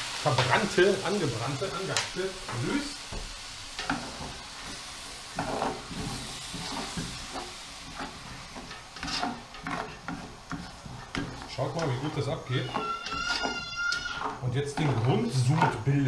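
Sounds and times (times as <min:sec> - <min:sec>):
sizzling hiss: 0:00.0 - 0:16.0
spoon scraping steel pot: 0:06.5 - 0:15.8.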